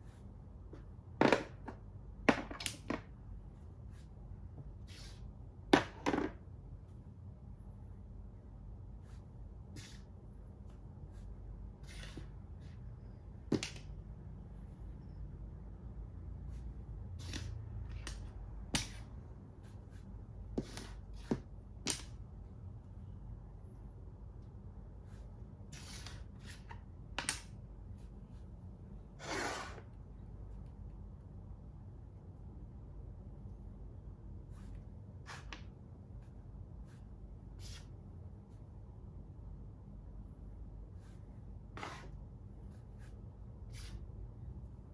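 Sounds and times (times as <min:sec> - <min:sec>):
chess piece scuffs and taps: 0:17.2 - 0:19.1, 0:20.5 - 0:22.2.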